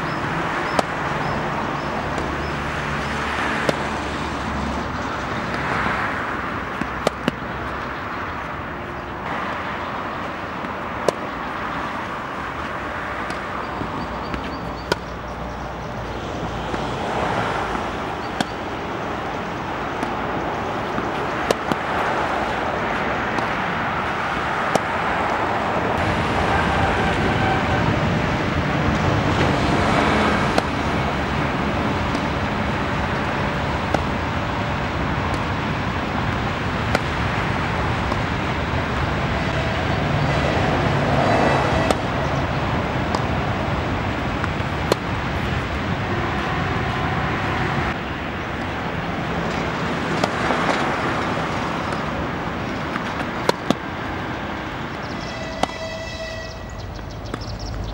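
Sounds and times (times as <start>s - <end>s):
outdoor background noise: 0.0s - 57.9s
tennis ball bouncing on court: 0.1s - 4.2s, 5.3s - 8.5s, 10.2s - 15.4s, 16.1s - 26.0s, 28.9s - 39.3s, 41.0s - 42.4s, 43.0s - 45.8s, 48.6s - 53.9s, 55.6s - 55.8s
tennis ball hit by racket: 0.5s - 4.1s, 5.4s - 8.4s, 10.2s - 15.2s, 16.6s - 26.0s, 28.9s - 39.3s, 41.0s - 45.9s, 49.2s - 54.0s, 55.6s - 55.8s.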